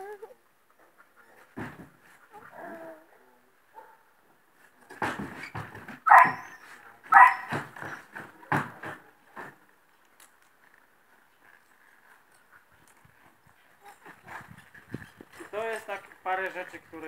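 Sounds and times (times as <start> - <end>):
hooves knocking on wooden ramp: 4.9 - 9.8
loud bark-like calls: 6.1 - 8.0.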